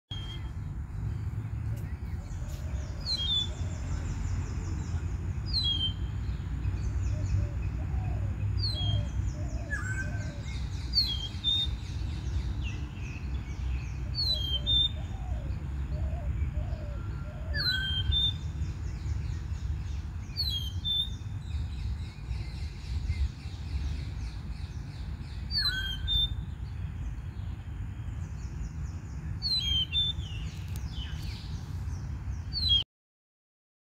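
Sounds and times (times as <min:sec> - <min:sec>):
other birds calling: 0:01.1 - 0:13.0, 0:13.9 - 0:26.7.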